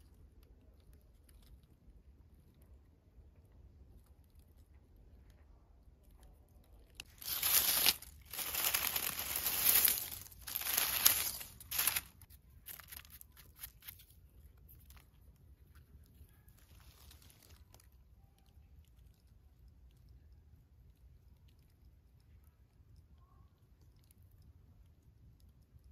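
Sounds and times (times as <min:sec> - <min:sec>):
dry leaves rustling and crackling: 0:07.0 - 0:13.8, 0:16.6 - 0:17.6.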